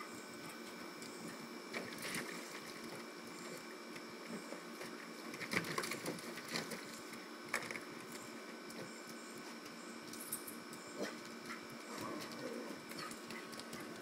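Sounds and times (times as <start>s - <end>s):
paws scrabbling on plastic: 11.0s - 14.0s.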